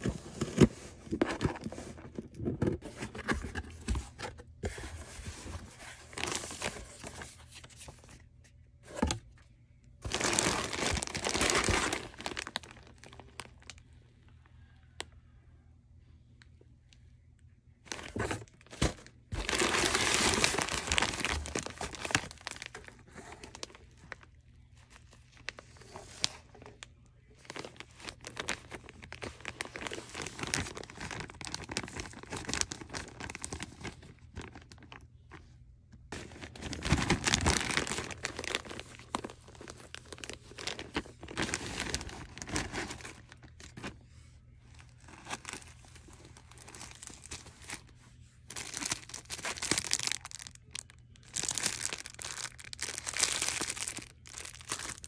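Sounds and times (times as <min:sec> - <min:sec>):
plastic bags crinkling: 0:05.7 - 0:08.2, 0:10.0 - 0:13.8, 0:17.9 - 0:26.8, 0:27.4 - 0:35.4, 0:36.1 - 0:44.0, 0:44.7 - 0:55.0.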